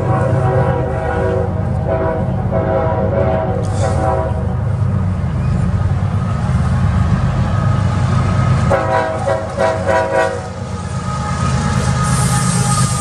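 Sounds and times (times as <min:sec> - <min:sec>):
train horn blasts: 0:00.0 - 0:04.6, 0:08.7 - 0:13.0
diesel locomotives rumbling: 0:00.0 - 0:13.0.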